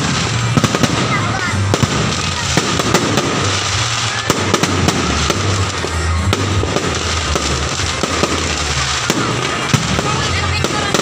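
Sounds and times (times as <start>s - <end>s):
fireworks crackling: 0.0s - 11.0s.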